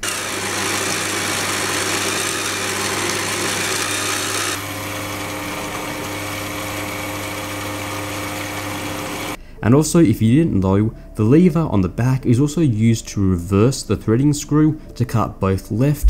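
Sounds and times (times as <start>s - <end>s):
lathe motor hum: 0.0s - 9.4s.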